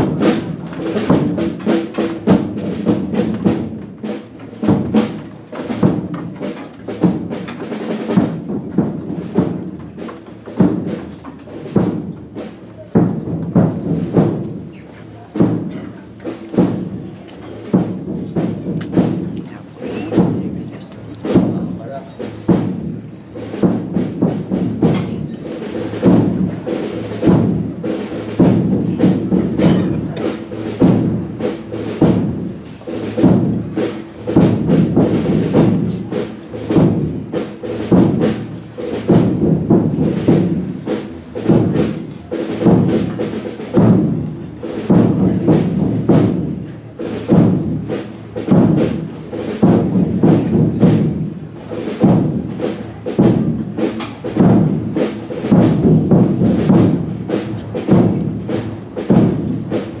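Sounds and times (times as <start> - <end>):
drums beating slow march: 0.0 - 60.0.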